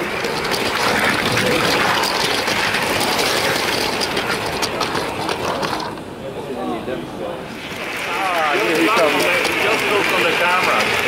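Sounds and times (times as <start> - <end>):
toy train motor whirring: 0.0 - 6.0, 8.2 - 10.8.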